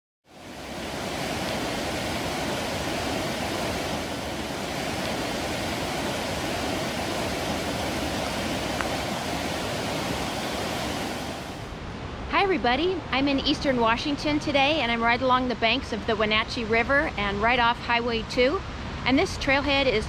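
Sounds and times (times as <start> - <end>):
river rapids rushing: 0.3 - 11.7.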